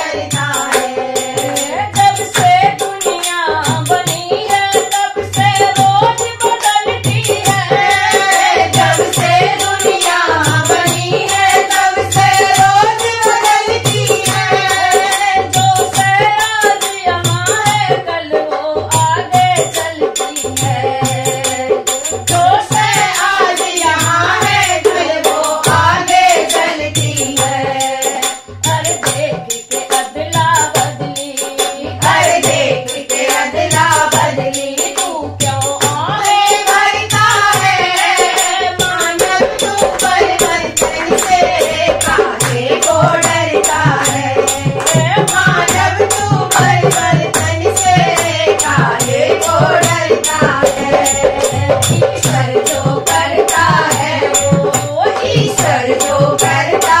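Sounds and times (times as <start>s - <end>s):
group singing devotional song: 0.0s - 57.0s
hand drum beat: 0.0s - 57.0s
hand clapping: 41.1s - 42.6s.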